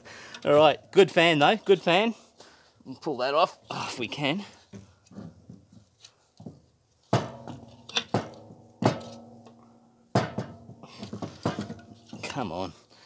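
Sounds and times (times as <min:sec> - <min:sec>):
sharp knocks with metallic ringing: 0:07.1 - 0:12.0.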